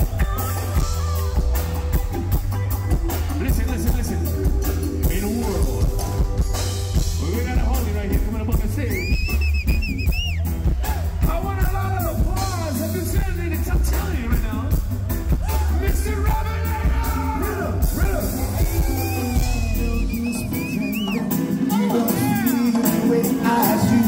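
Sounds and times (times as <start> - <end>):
person singing: 0.0 - 9.1, 15.4 - 24.0
reggae bass and drums: 0.0 - 24.0.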